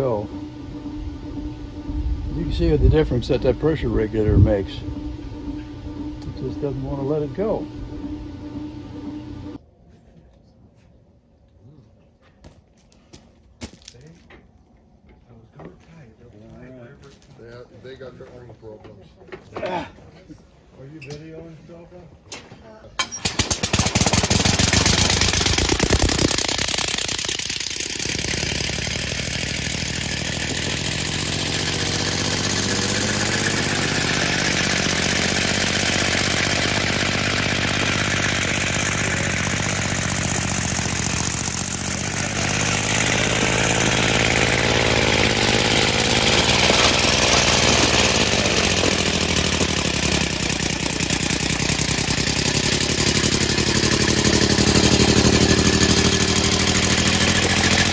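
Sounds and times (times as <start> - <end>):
pulsing air engine: 0.0 - 9.6, 23.2 - 57.9.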